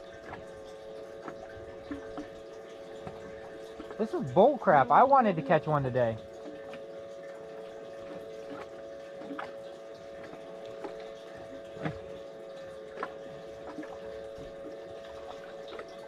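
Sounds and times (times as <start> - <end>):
steady hum: 0.0 - 16.0
water lapping against boat hull: 0.0 - 16.0
light knocks on hull: 11.8 - 12.2.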